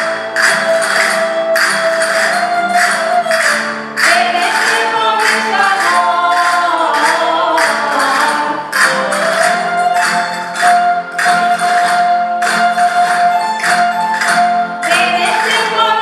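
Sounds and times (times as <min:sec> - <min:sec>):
folk string band playing: 0:00.0 - 0:16.0
sharp percussive strikes: 0:00.0 - 0:16.0
person singing: 0:04.0 - 0:09.4, 0:14.8 - 0:16.0.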